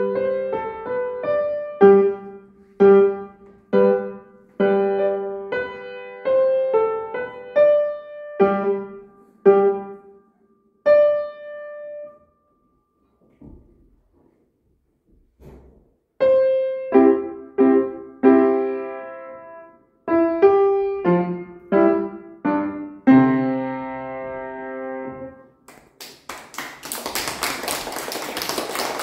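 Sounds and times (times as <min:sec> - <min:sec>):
piano notes and chords: 0:00.0 - 0:13.0, 0:16.2 - 0:25.6
children clapping: 0:25.7 - 0:29.0.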